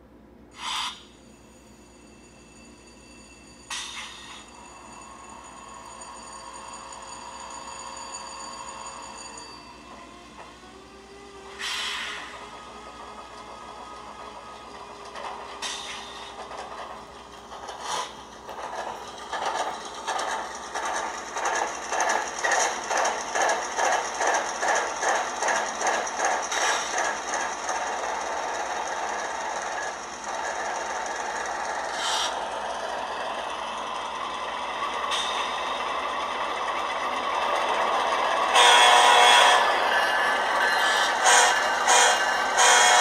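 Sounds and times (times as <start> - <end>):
model locomotive diesel sounds: 0.0 - 43.0.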